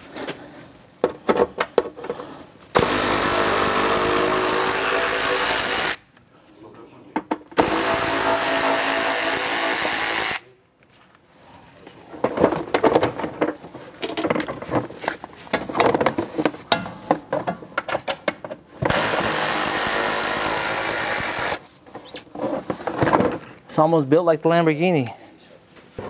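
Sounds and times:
power tool running: 0:02.8 - 0:06.0, 0:07.6 - 0:10.5, 0:18.9 - 0:21.6.

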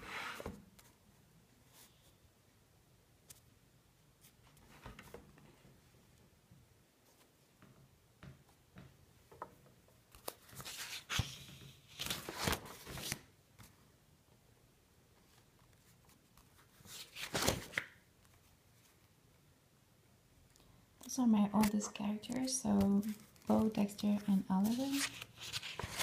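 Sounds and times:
paper pages rustling: 0:10.1 - 0:13.8, 0:15.3 - 0:19.0, 0:21.5 - 0:26.0.

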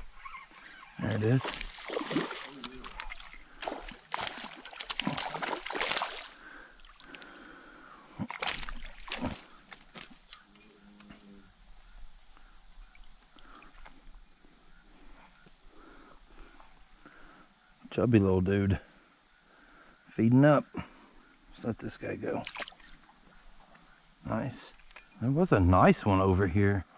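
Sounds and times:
fish splashing in water: 0:00.0 - 0:10.5, 0:22.3 - 0:24.0
high-pitched insect drone: 0:00.0 - 0:17.7.

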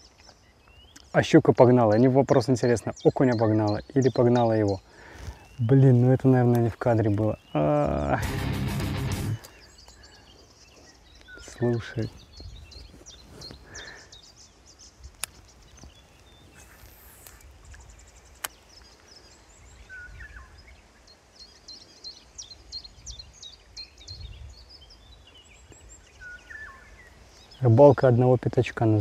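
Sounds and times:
songbirds chirping: 0:00.0 - 0:29.0
sharp clicks: 0:18.4 - 0:18.6.

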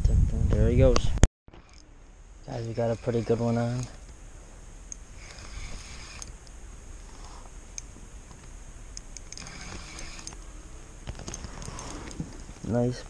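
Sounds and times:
fishing reel cranking: 0:01.6 - 0:01.8, 0:02.5 - 0:04.0, 0:05.2 - 0:06.4, 0:09.2 - 0:10.4
handling ticks and knocks: 0:07.7 - 0:12.7.

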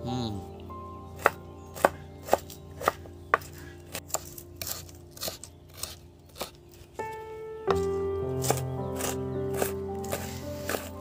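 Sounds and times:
knife chopping on wooden board: 0:01.2 - 0:06.6, 0:07.7 - 0:11.0.

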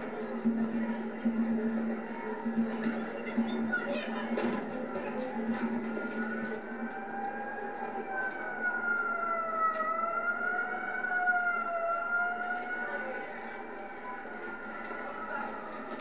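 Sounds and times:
siren wailing: 0:05.4 - 0:16.0.

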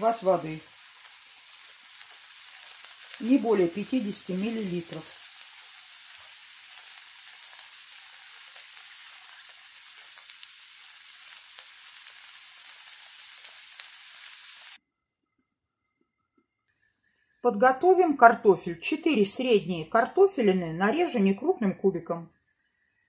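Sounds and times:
vegetables sizzling in frying pan: 0:00.0 - 0:14.8.

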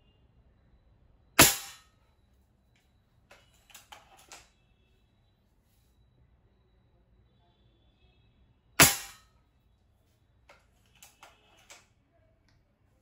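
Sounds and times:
air rifle shot: 0:01.4 - 0:01.8, 0:08.8 - 0:09.2.

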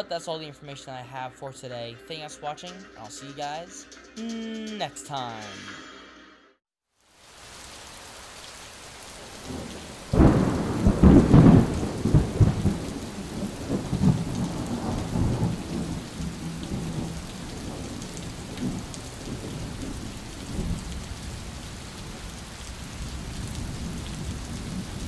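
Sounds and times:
steady rain: 0:06.9 - 0:25.0
rolling thunder: 0:09.4 - 0:25.0.

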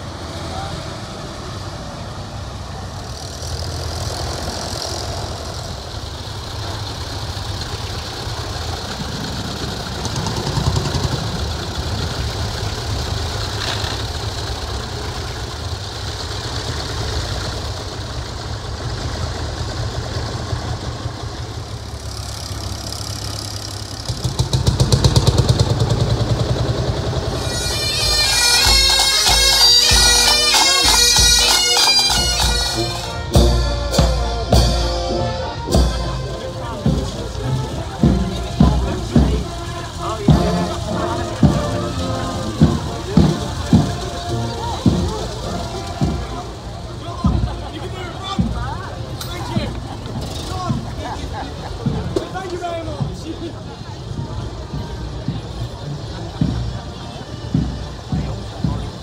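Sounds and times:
tractor and lorry engines: 0:00.0 - 0:59.0
bagpipes playing: 0:27.3 - 0:46.8.

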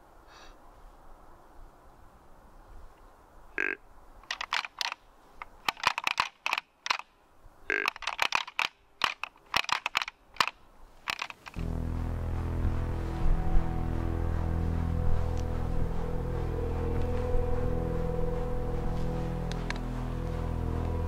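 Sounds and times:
background music: 0:11.6 - 0:21.0.

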